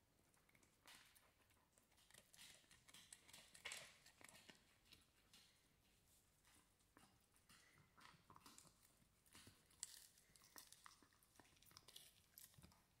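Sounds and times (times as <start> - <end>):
dog chewing hard chew: 7.5 - 13.0.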